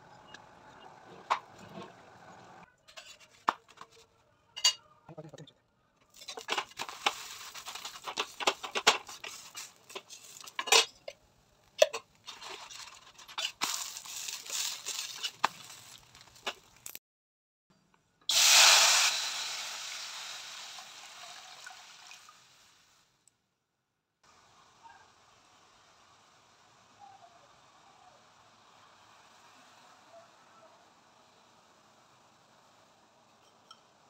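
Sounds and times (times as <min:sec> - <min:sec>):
spatula scraping iron griddle: 0:02.9 - 0:03.4, 0:06.1 - 0:11.0
water splashing into hot pan: 0:18.3 - 0:23.0.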